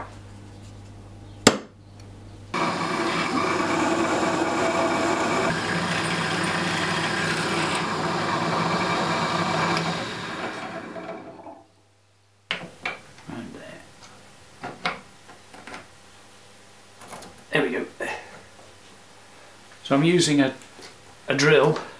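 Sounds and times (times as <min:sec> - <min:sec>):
drill press cutting into metal: 0:02.6 - 0:11.6.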